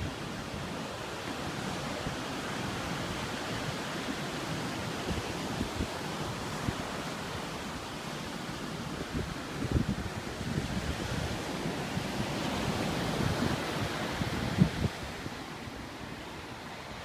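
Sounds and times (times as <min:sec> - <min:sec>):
ocean surf breaking: 0:00.0 - 0:17.0
wind buffeting microphone: 0:08.3 - 0:17.0.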